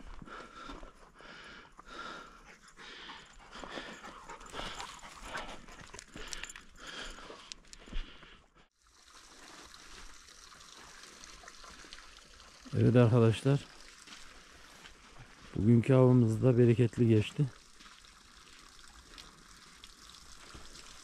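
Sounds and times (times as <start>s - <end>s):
dog panting: 1.2s - 7.6s.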